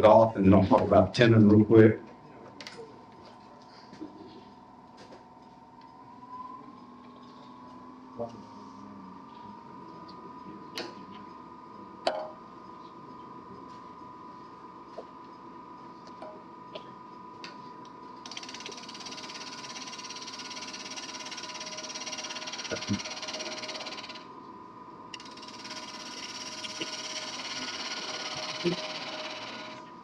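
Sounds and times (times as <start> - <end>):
wood lathe motor whine: 18.2 - 24.3, 25.2 - 30.0.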